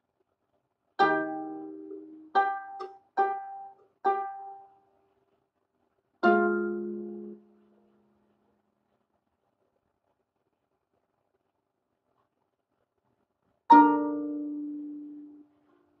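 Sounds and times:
harp plucked notes and chords: 6.2 - 7.4, 13.7 - 15.2.

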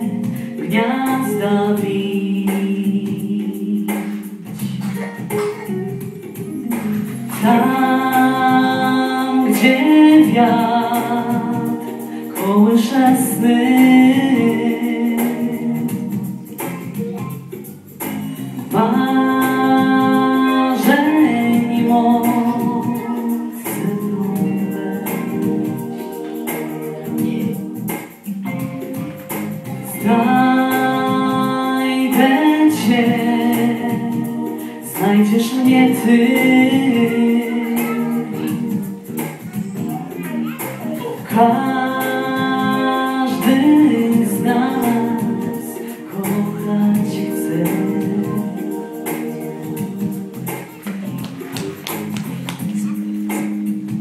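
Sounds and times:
man singing into a microphone: 0.0 - 4.3, 6.5 - 16.7, 18.3 - 27.8, 29.9 - 51.2
instrumental accompaniment: 0.0 - 54.0
man singing long notes: 29.8 - 50.6.

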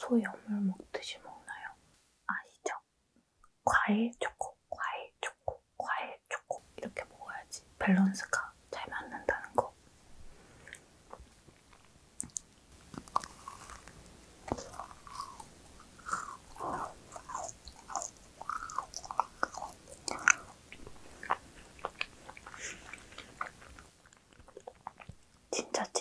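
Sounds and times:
chewing crisp macaron: 10.7 - 25.5.

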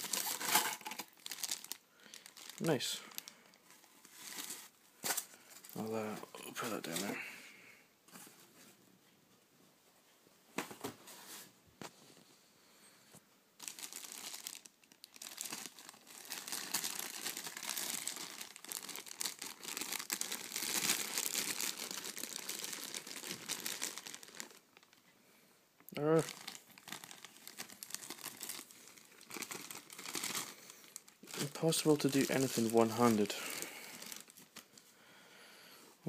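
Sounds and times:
plastic bag crinkling: 0.0 - 7.3, 13.6 - 25.0, 26.0 - 34.9.

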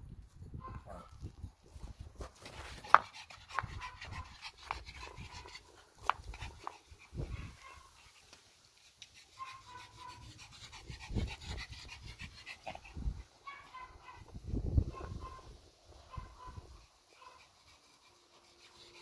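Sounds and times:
dog panting: 2.4 - 14.0, 16.4 - 19.0.

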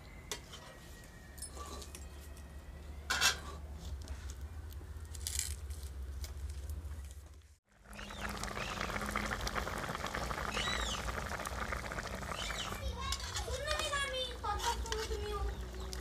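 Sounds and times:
curry bubbling in a pan: 7.7 - 16.0.

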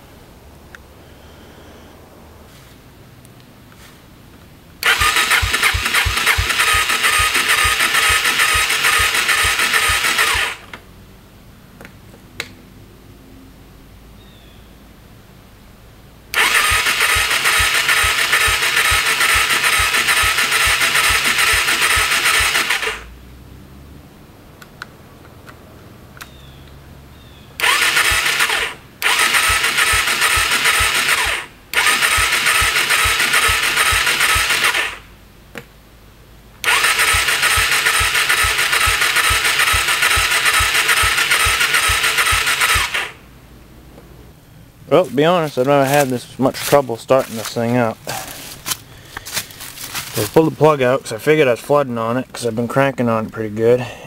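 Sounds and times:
electric starter cranking engine: 4.8 - 10.8, 16.3 - 23.1, 27.6 - 35.1, 36.6 - 43.2.

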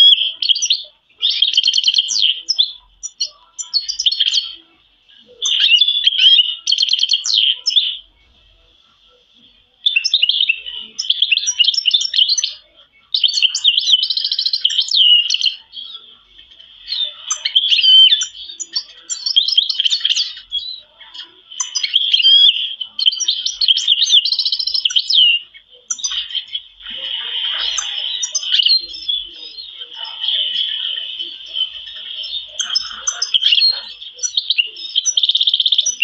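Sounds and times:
canaries singing: 0.0 - 36.0.

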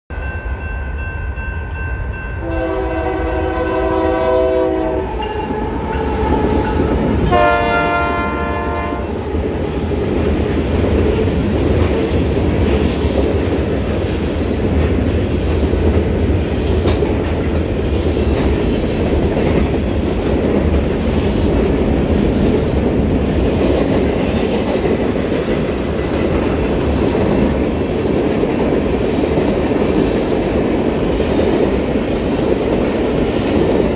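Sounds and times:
train horn blowing: 2.4 - 9.3.

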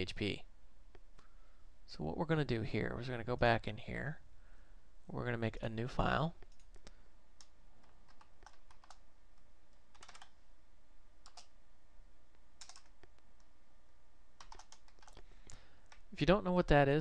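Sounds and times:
faint low hum: 0.0 - 17.0
keyboard keys clicking: 6.4 - 9.0, 9.9 - 10.3, 12.6 - 13.2, 14.4 - 15.2.

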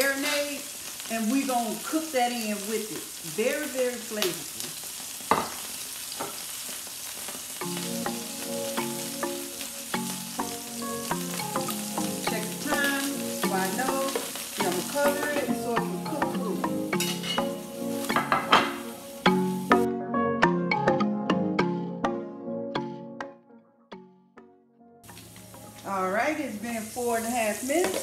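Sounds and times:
fish sizzling in hot oil: 0.0 - 19.9, 25.0 - 28.0
background music: 7.6 - 26.7.

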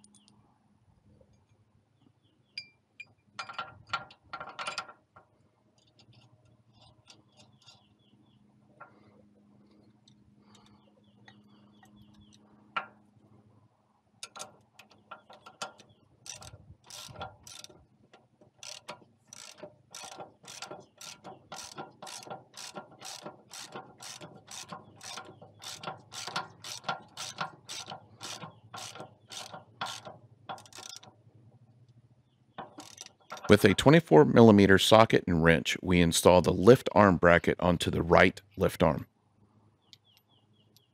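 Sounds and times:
hand ratchet clicking: 14.2 - 17.8, 18.6 - 31.1, 32.6 - 33.6.

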